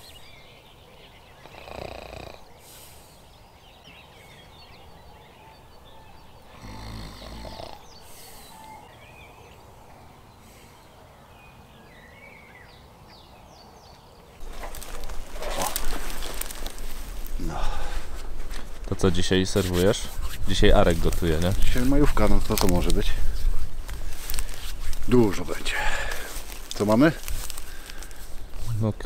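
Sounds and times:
small birds chirping: 0.0s - 29.0s
low breathy sounds: 6.4s - 9.2s, 9.9s - 11.2s, 14.7s - 18.8s, 25.6s - 26.5s.

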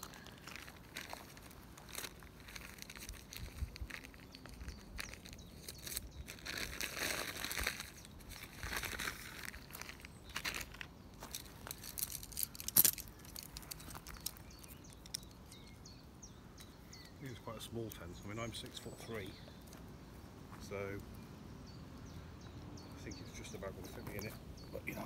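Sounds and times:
tent pole sections clicking: 10.7s - 15.8s.

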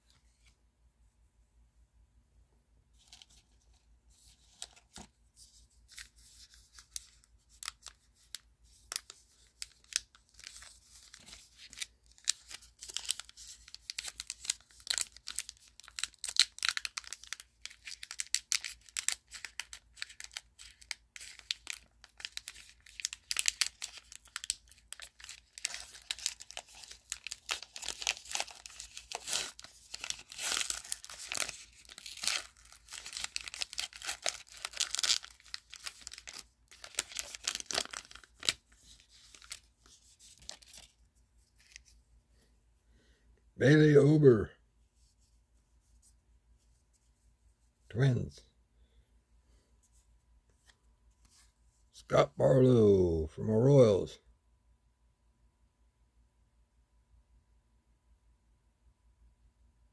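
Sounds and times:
plastic wrapper tearing and crinkling: 5.9s - 41.9s.

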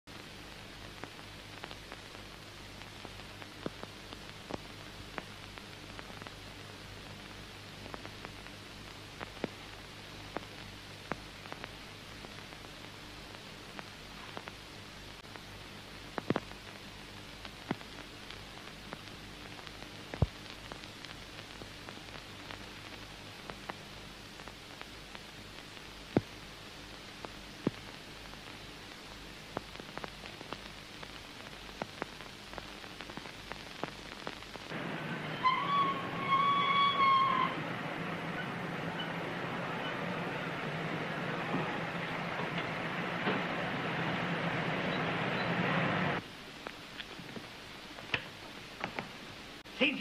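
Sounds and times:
crackles and pops: 0.0s - 50.0s
film soundtrack hiss: 0.0s - 50.0s
clicks and pops: 16.1s - 16.6s, 17.4s - 23.8s, 27.2s - 28.6s
low hum: 34.2s - 46.8s.

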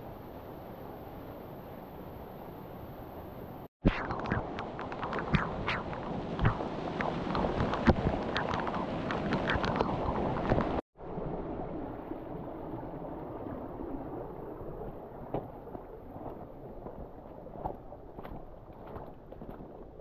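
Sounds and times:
wind on microphone: 3.9s - 20.0s
creek water rushing: 4.2s - 19.5s.

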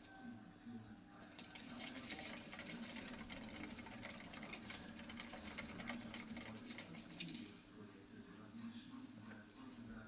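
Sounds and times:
fast light scratching and ticking: 1.2s - 7.7s
exercise wheel rumbling: 1.3s - 7.6s.

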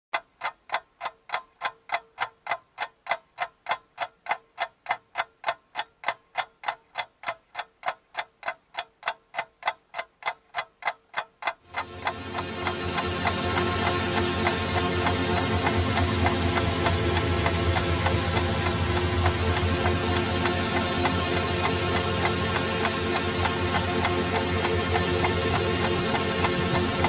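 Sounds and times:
clock ticking: 0.1s - 27.0s
music: 11.7s - 27.0s.

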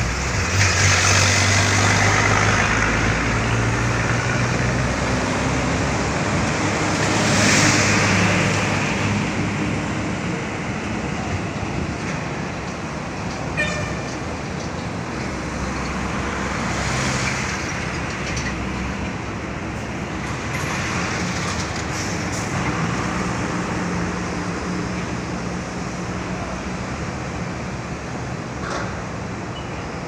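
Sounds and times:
truck engines and road noise: 0.0s - 30.0s.

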